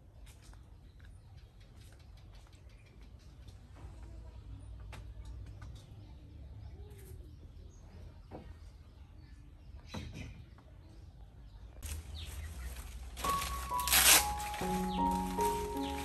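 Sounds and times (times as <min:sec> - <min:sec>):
birds chirping: 0:11.4 - 0:16.0.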